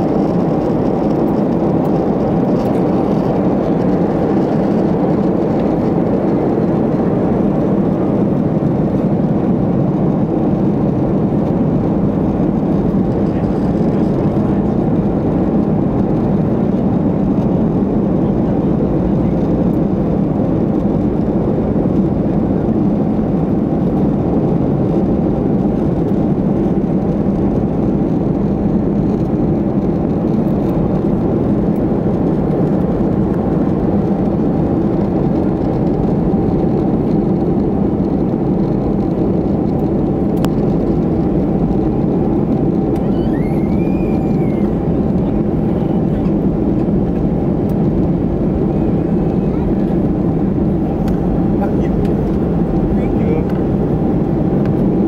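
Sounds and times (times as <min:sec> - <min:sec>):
air rushing along fuselage: 0:00.0 - 0:55.0
jet engines droning: 0:00.0 - 0:55.0.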